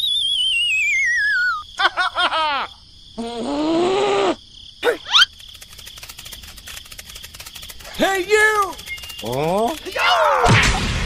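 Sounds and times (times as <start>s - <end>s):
wavering whistle sliding down: 0.0s - 1.6s
quick rising whistles: 0.0s - 1.7s, 5.0s - 6.0s, 8.6s - 9.8s.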